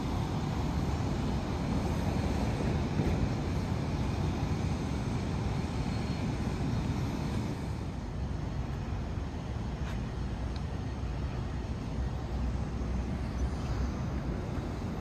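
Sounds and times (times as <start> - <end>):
street ambience rumble: 0.0 - 15.0.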